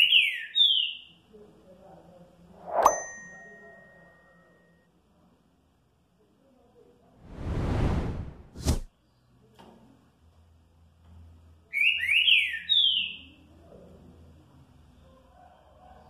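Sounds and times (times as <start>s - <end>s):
bird whistling song: 0.0s - 1.1s, 11.7s - 13.3s.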